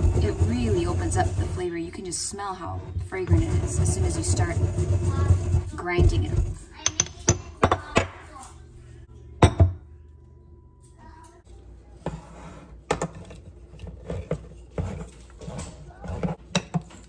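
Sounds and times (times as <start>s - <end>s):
pestle grinding in mortar: 0.0s - 1.6s, 3.0s - 6.6s.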